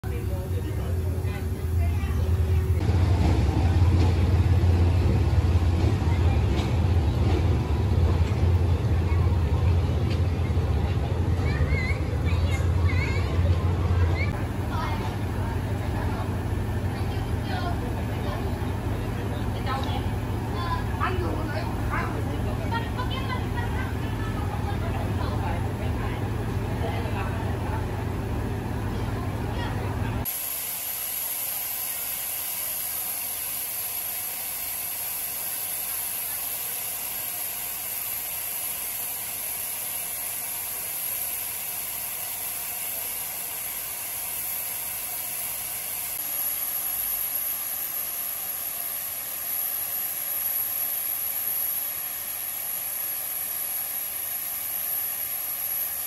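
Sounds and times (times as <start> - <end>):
steam locomotive hissing: 30.2 - 56.0.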